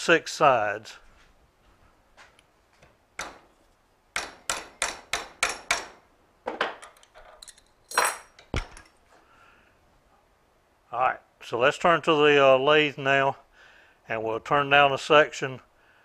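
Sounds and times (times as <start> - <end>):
mallet tapping a wrench: 4.2 - 6.0.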